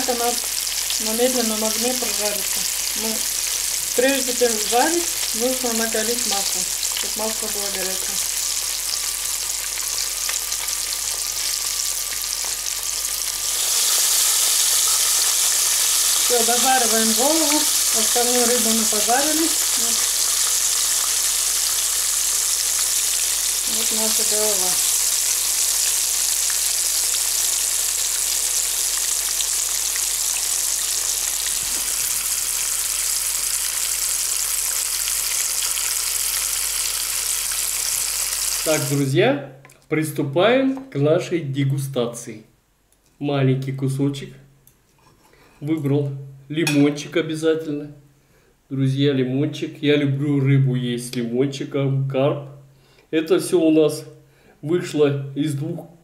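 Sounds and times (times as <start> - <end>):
fish frying in hot oil: 0.0 - 39.0.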